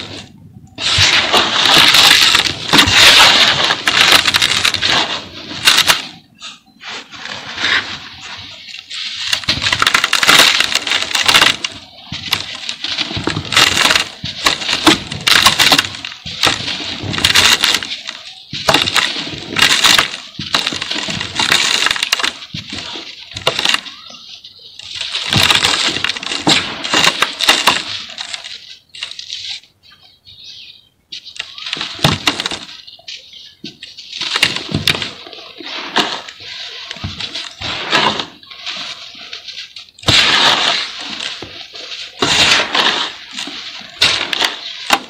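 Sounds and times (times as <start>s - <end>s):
gritty crackling of crumbling cement: 0.0s - 6.5s, 7.1s - 29.5s, 31.2s - 45.0s.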